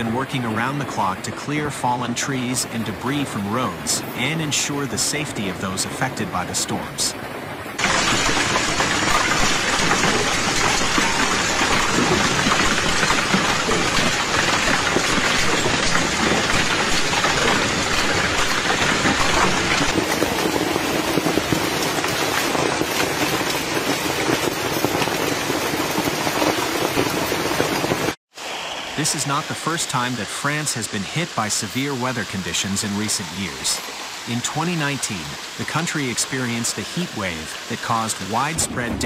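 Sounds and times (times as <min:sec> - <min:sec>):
hailstones pelting down: 0:07.8 - 0:28.2.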